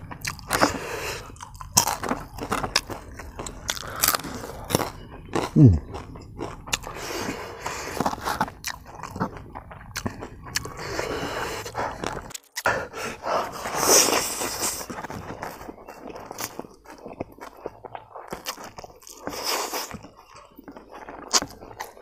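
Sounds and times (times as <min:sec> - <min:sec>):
chewing clicks: 0:07.8 - 0:12.7, 0:14.5 - 0:22.0.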